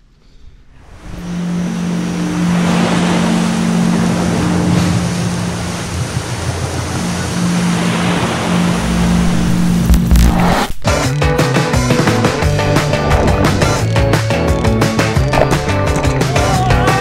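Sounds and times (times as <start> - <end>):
low droning tone: 0.3 - 17.0
ocean waves washing in: 0.7 - 10.8.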